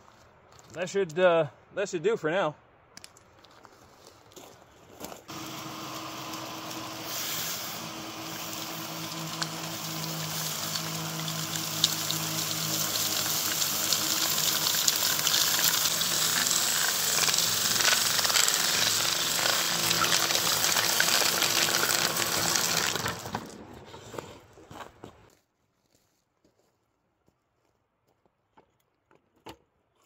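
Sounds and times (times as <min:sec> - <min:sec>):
power broom motor hum: 0:05.3 - 0:23.9
rattle of flung stones: 0:09.4 - 0:23.8.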